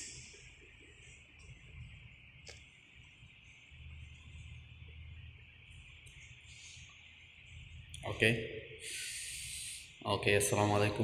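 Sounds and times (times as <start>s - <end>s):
high-pitched hiss: 6.2s - 11.0s.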